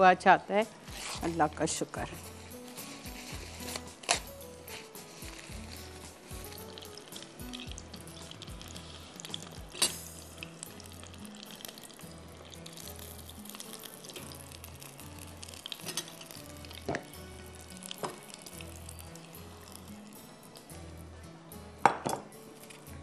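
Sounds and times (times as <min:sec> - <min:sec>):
food sizzling in hot oil: 0:00.6 - 0:20.8
utensils clicking against pan: 0:09.2 - 0:10.2, 0:15.8 - 0:17.0.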